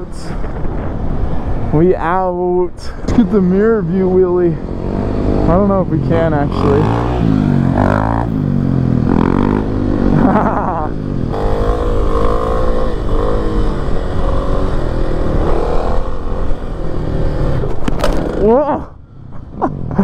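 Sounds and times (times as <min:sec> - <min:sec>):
motorcycle engines revving: 0:00.0 - 0:20.0
motorcycle engine running: 0:04.5 - 0:19.4.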